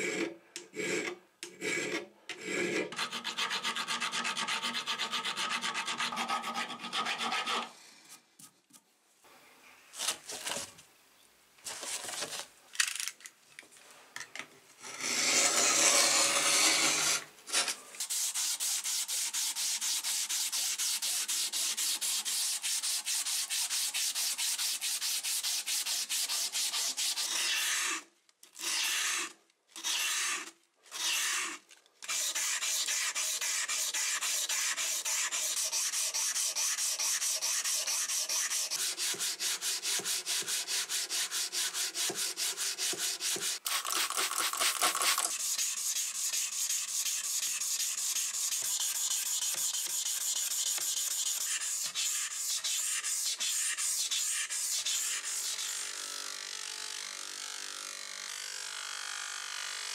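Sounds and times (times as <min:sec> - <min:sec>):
sanding block on metal: 0:02.9 - 0:07.7, 0:15.0 - 0:17.2, 0:18.0 - 0:28.0, 0:30.9 - 0:55.8
abrasive strip rubbing metal: 0:14.8 - 0:28.0, 0:28.7 - 0:57.2.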